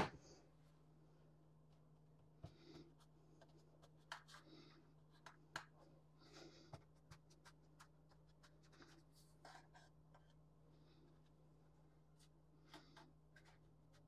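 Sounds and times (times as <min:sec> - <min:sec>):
fingers pressing cookie crumbs: 0:03.7 - 0:05.9, 0:06.7 - 0:09.1.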